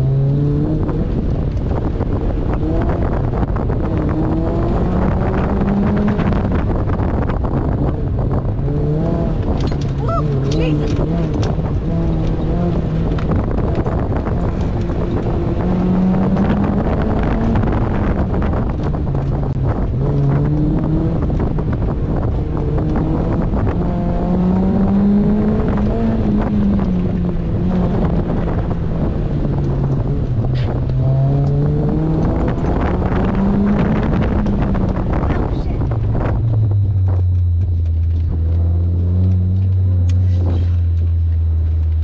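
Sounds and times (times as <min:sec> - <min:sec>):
car engine revving: 0:00.0 - 0:42.0
wind buffeting: 0:00.5 - 0:39.5.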